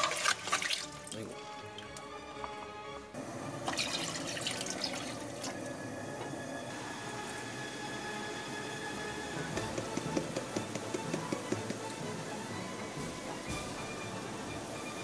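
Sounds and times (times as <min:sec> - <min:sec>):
water pouring and splashing: 0:00.0 - 0:02.7, 0:03.6 - 0:05.8.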